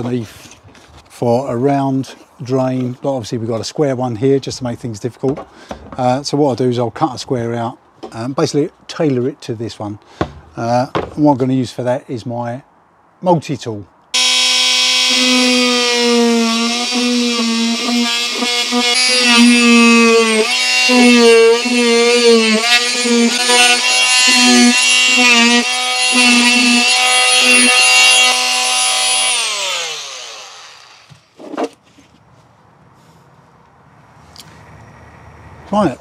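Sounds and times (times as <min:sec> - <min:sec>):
oscillating multi-tool cutting plastic: 0:14.2 - 0:31.3.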